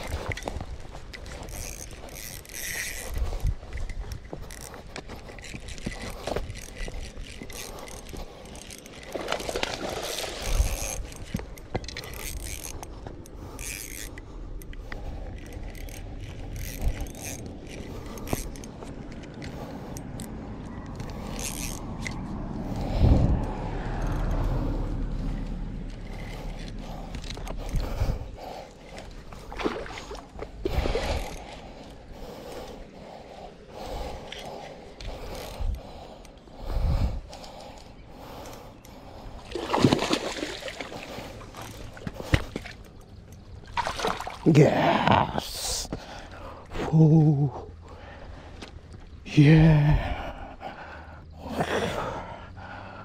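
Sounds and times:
fishing reel gears whirring: 0:00.0 - 0:23.3, 0:24.0 - 0:39.4.

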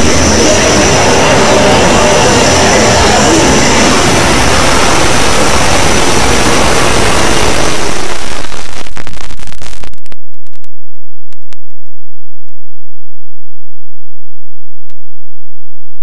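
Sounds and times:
dense static noise: 0:00.0 - 0:10.7
crackling and sharp clicks: 0:07.8 - 0:12.6.

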